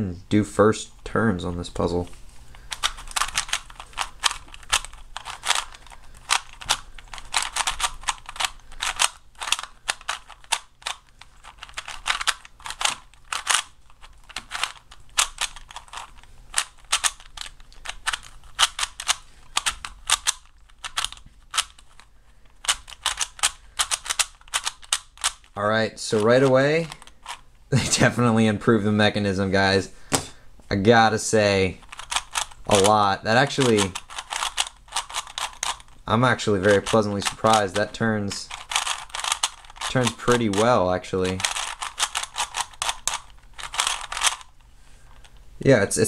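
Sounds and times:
puzzle cube plastic layers clicking: 2.5 - 27.4, 31.7 - 45.4.

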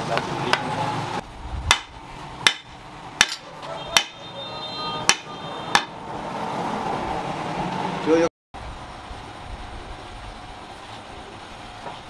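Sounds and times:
sharp knocks of wood on block: 1.7 - 4.2, 5.0 - 6.0.

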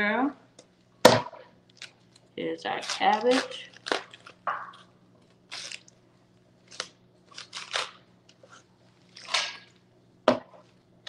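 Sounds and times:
knife crunching through cabbage: 2.7 - 5.9, 6.6 - 9.7.

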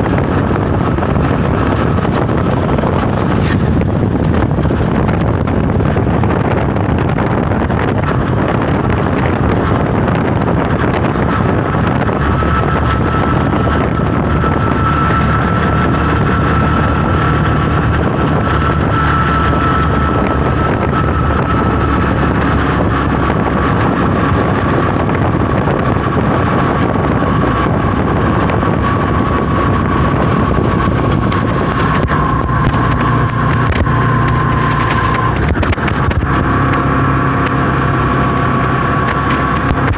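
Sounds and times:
vehicle engine and road noise: 0.0 - 39.9
wind buffeting: 0.0 - 39.9.

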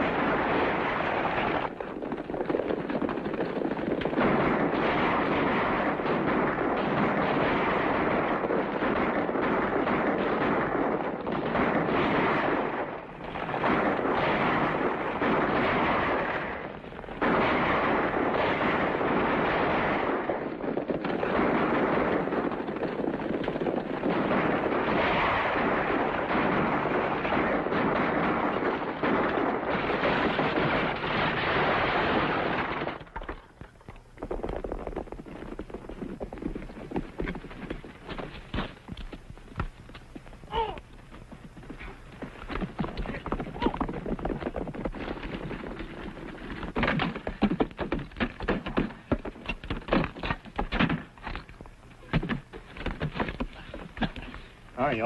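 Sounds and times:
rapid gunfire: 0.0 - 33.0
galloping hooves: 0.0 - 55.0.

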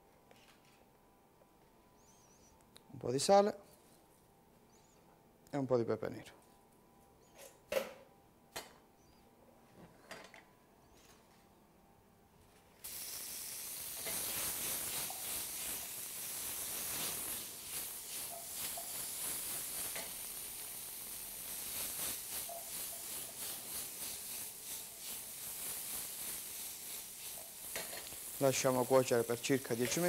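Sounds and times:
vegetables frying in oil: 12.8 - 30.0.

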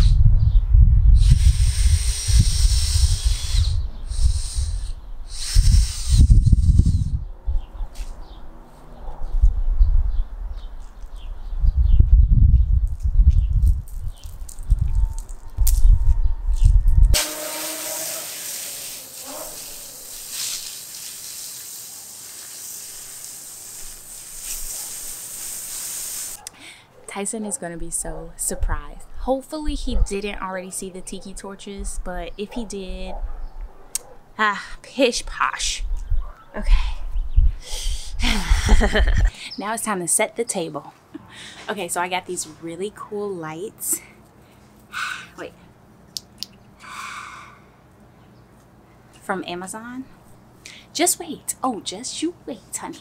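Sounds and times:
wind rumbling on microphone: 0.0 - 17.2, 35.7 - 39.3
hose spray nozzle hissing: 1.2 - 7.0, 17.2 - 26.4.

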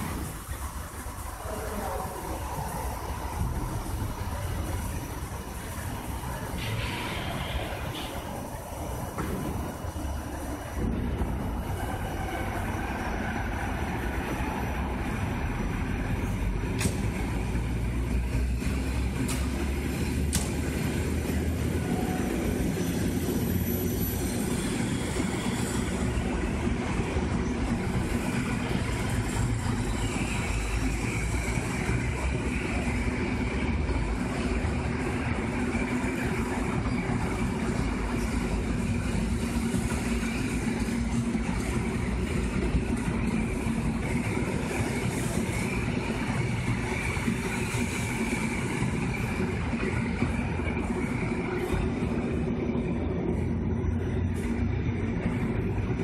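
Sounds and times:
train wheels rumbling on track: 0.0 - 56.0.

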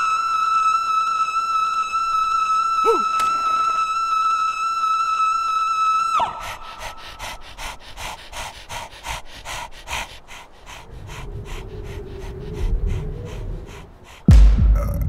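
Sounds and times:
rapid panting: 6.2 - 14.6.

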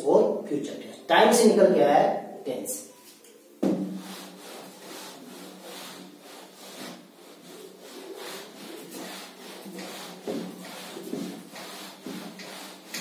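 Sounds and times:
duster rubbing on whiteboard: 3.7 - 13.0.

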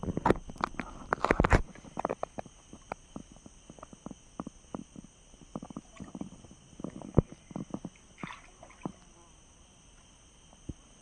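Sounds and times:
water splashing and dripping: 8.2 - 9.1.

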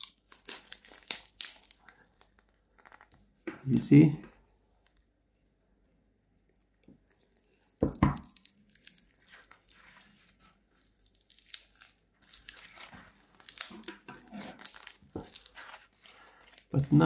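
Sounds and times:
foam ripping and crunching: 7.0 - 17.0.

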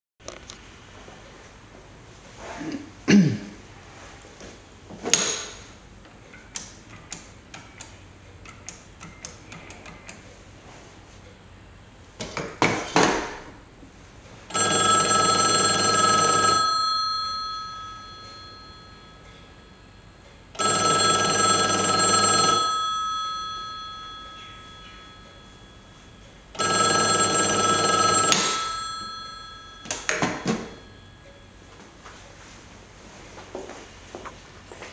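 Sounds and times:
pay phone bell ringing: 14.5 - 32.5
ringing metal clang: 28.4 - 31.5.

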